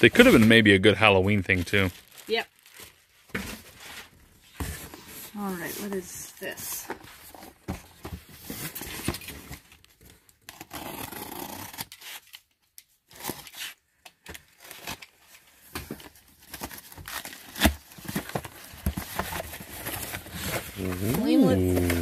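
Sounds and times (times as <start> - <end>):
blade slitting packing tape: 10.5 - 12.5
cardboard scraping and tearing: 16.5 - 22.0.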